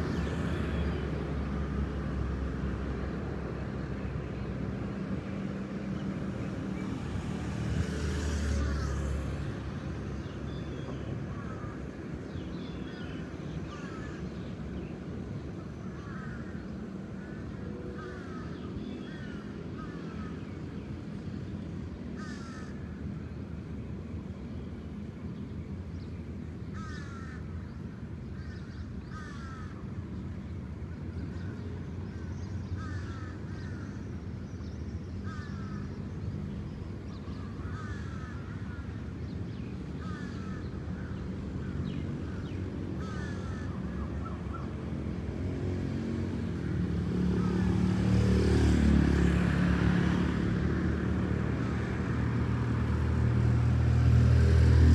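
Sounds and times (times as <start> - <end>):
crows cawing: 13.7 - 14.2, 15.9 - 16.6, 22.2 - 22.9, 26.7 - 27.4, 28.4 - 29.8, 32.8 - 34.0, 35.2 - 35.9, 37.5 - 38.9, 40.0 - 41.2, 42.3 - 44.6.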